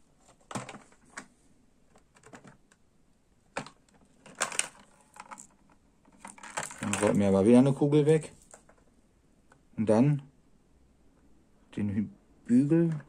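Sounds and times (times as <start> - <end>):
plastic toy clicks and clacks: 3.6 - 7.2.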